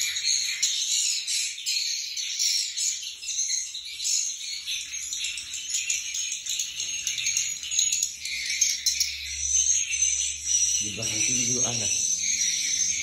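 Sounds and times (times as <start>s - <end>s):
swiftlets twittering: 7.2s - 13.0s.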